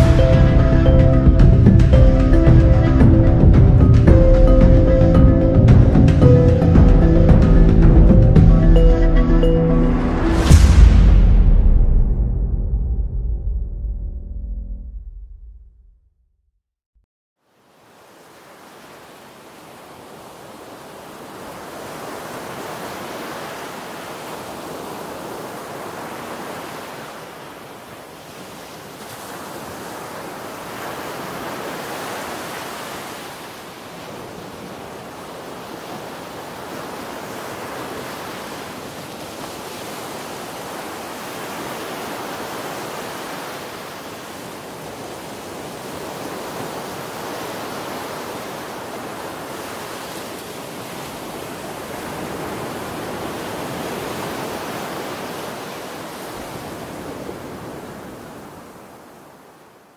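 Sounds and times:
sea surf washing on beach: 17.6 - 59.9.

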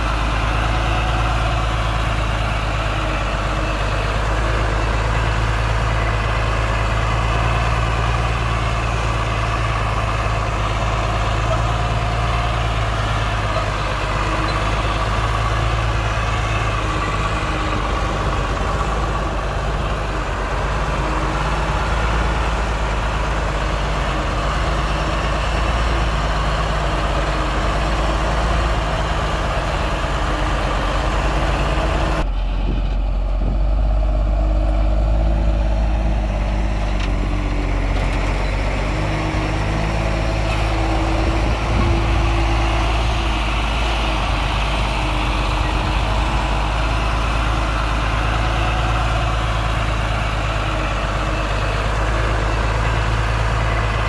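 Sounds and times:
heavy diesel machinery running: 0.0 - 54.0.

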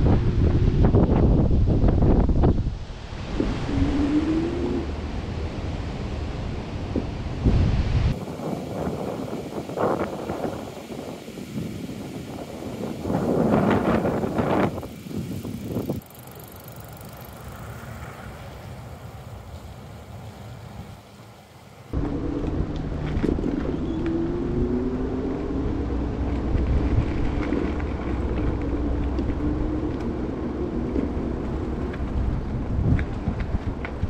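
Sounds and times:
tyres and wind rumble: 0.0 - 34.0
faint rising whine: 22.0 - 32.5.

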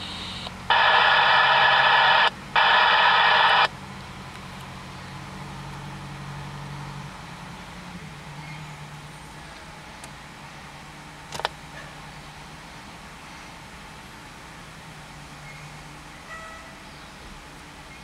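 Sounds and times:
fire engine warning blasts: 0.0 - 3.7
diesel engine idling: 0.0 - 15.3.

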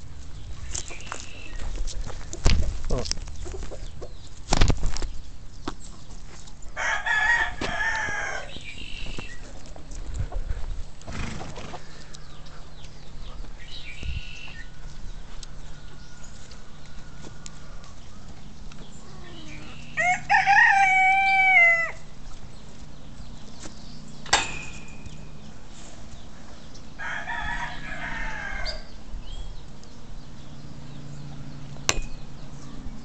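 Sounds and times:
rooster crowing: 6.8 - 8.6, 19.8 - 22.1, 27.0 - 29.0.

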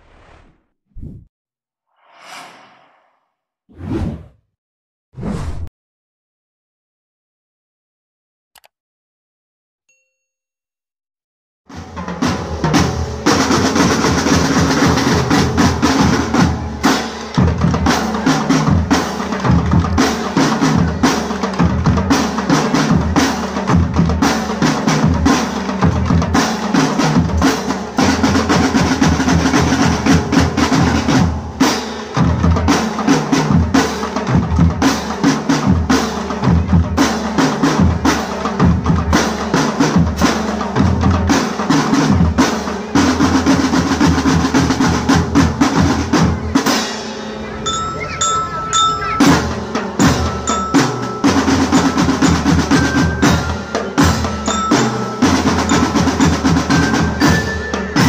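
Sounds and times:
snare drums: 11.7 - 47.2, 49.2 - 58.0.

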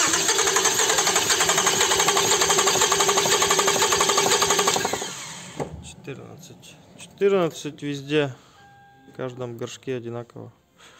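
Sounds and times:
starter motor cranking engine: 0.0 - 5.7.

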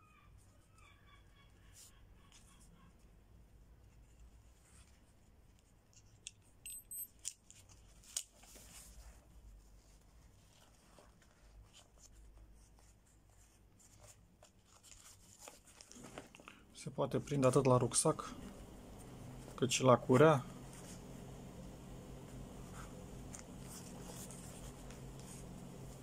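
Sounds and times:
fabric rustling: 7.6 - 16.6, 18.4 - 26.0.

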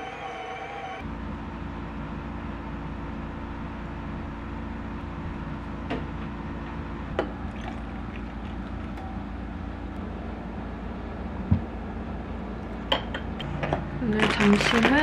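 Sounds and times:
kitchen appliance humming: 2.2 - 15.0
coffee pouring: 7.2 - 9.0.

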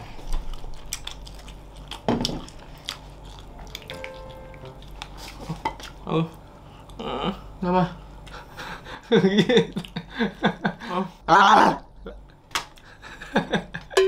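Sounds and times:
chewing: 0.0 - 7.1, 9.7 - 10.0.

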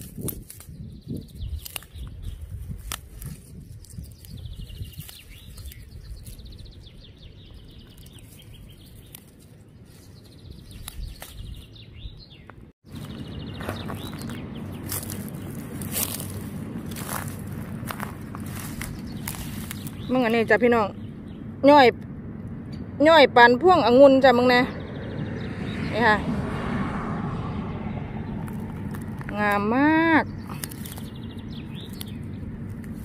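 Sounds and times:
songbird trilling: 0.7 - 22.0, 22.6 - 26.2, 28.3 - 33.0
rustling: 12.9 - 21.2.

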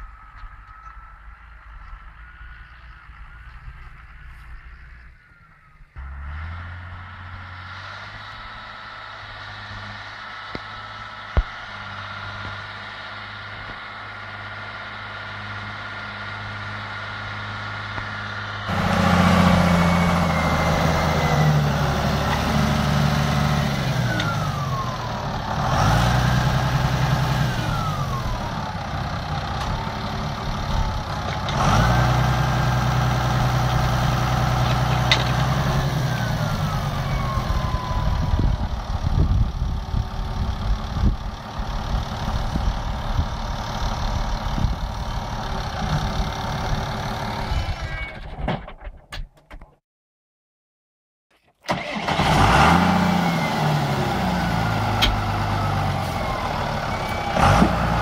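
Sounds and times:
tractor diesel engine running: 0.0 - 49.0, 51.6 - 58.0
knocks and clunks: 48.1 - 49.8.

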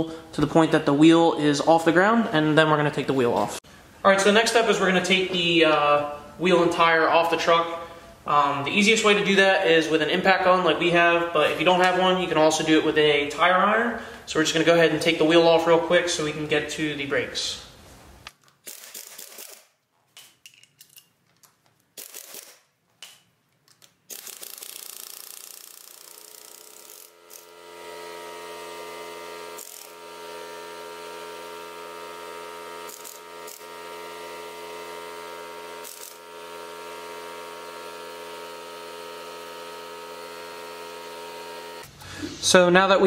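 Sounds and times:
air impact wrench bursts: 18.6 - 19.7, 24.1 - 42.0
steady machine hum: 25.9 - 42.2.

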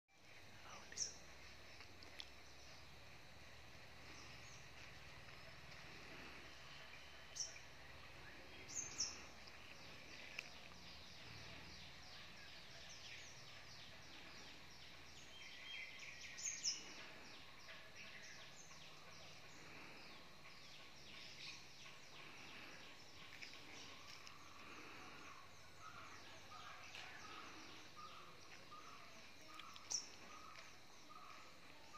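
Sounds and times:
birds chirping and calling: 4.0 - 31.9.

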